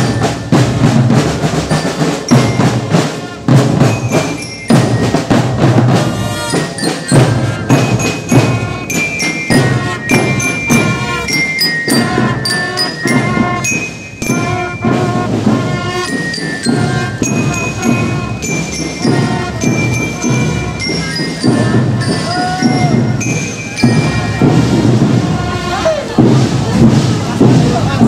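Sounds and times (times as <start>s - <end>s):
marching drums beating: 0.0s - 28.0s
brass horns holding notes: 2.0s - 4.5s, 5.7s - 23.2s, 23.9s - 26.3s.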